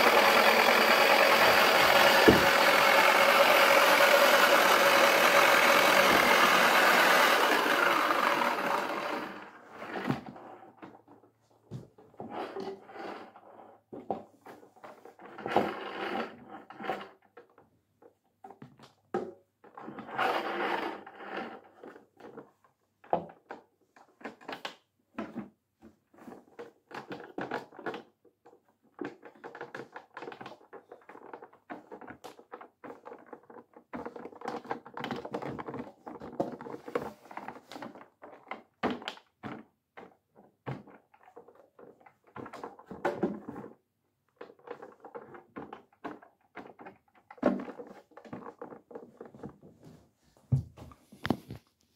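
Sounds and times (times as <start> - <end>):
plastic pieces knocking inside: 0.0 - 9.4
clicks and thunks: 1.3 - 2.8.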